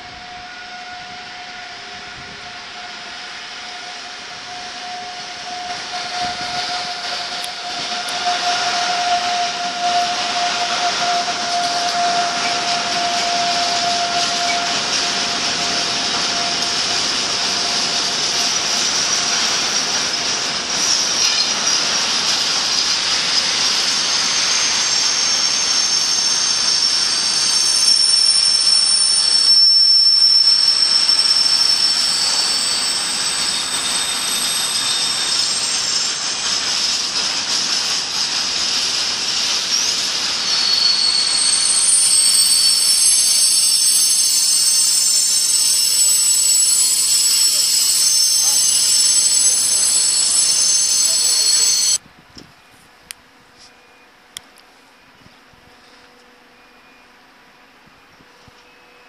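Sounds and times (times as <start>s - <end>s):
electric locomotive whine: 0.0s - 59.0s
high wheel squeals: 2.9s - 22.0s, 22.7s - 52.0s
train wagons rumbling: 4.8s - 52.0s.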